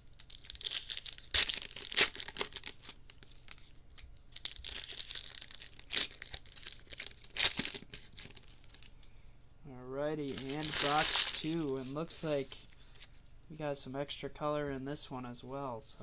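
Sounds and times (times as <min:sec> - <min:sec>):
plastic wrapper tearing and crinkling: 0:00.1 - 0:08.9, 0:10.3 - 0:13.2.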